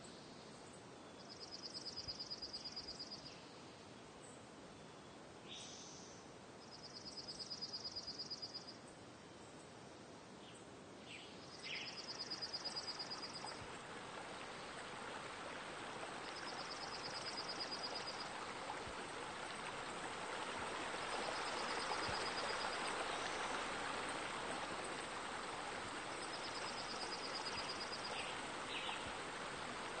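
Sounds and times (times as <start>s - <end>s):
running water rushing: 12.2s - 30.0s.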